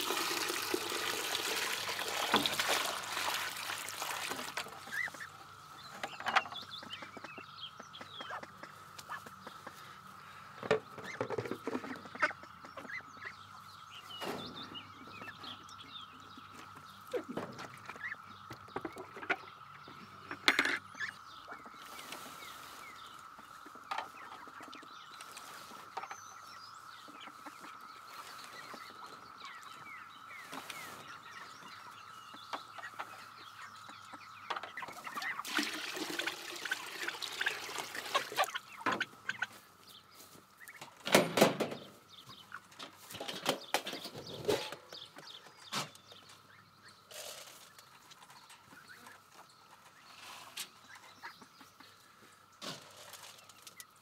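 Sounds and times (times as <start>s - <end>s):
chickens clucking: 0.3s - 54.0s
ducks calling: 0.4s - 41.0s
knocks and clatter: 41.0s - 41.9s.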